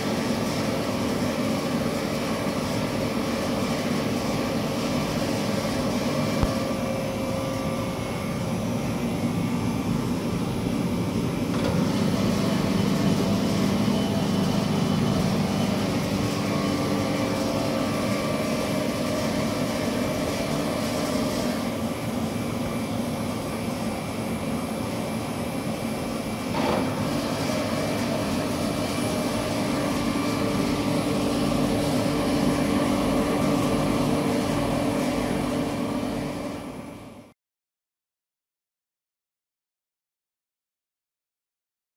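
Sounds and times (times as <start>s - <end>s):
steady machine hum: 0.0s - 37.3s.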